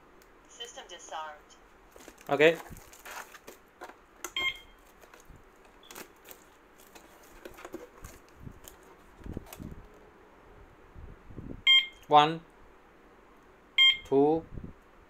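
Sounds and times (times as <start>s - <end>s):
plastic wrap crinkling: 1.9s - 4.0s, 4.8s - 9.8s
short electronic beep: 13.8s - 14.1s.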